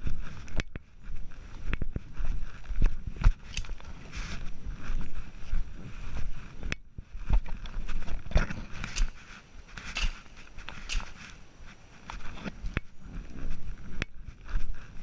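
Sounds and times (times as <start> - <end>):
footsteps on dirt trail: 0.0 - 15.0
brushing through leafy undergrowth: 2.2 - 6.6, 7.8 - 15.0.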